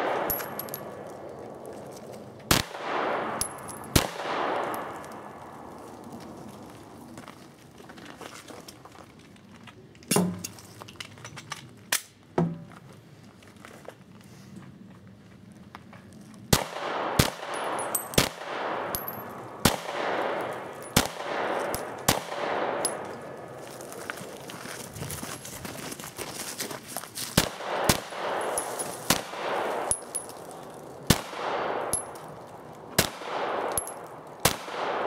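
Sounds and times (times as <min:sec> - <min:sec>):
gunshots with ringing echo: 0:00.0 - 0:01.1, 0:02.5 - 0:05.6, 0:16.5 - 0:23.6, 0:27.4 - 0:30.3, 0:31.0 - 0:32.2, 0:33.0 - 0:35.0.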